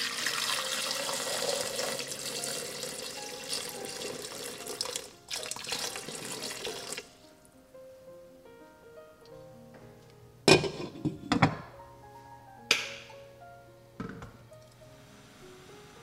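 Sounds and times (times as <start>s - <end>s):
water boiling hard in a pot: 0.0s - 7.0s.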